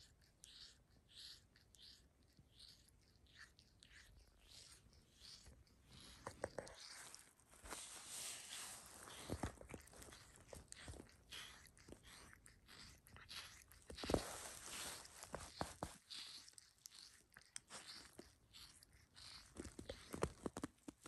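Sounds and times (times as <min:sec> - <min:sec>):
cat licking itself: 0:00.0 - 0:21.0.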